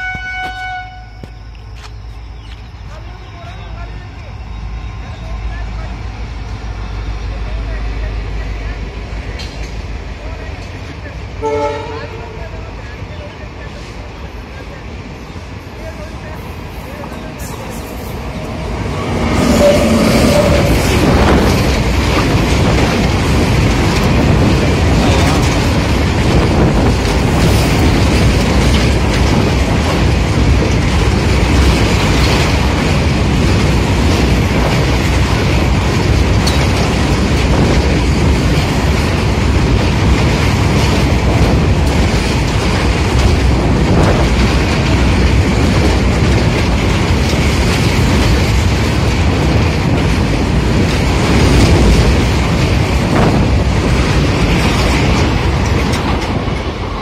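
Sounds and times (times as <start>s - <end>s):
freight train rumbling past: 0.0s - 57.0s
train wheels clattering over rail joints: 9.3s - 11.0s, 16.7s - 57.0s.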